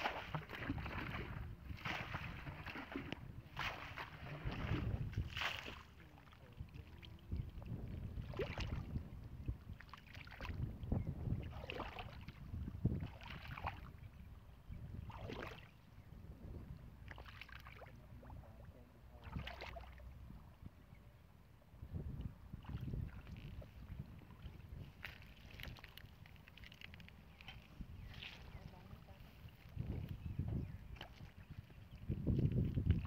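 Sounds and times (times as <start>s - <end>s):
water splashes: 0.0s - 10.7s, 11.3s - 14.0s, 15.0s - 15.8s, 17.0s - 18.4s, 19.0s - 20.1s, 22.5s - 29.8s, 30.8s - 33.0s
wind rumble on microphone: 0.0s - 33.0s.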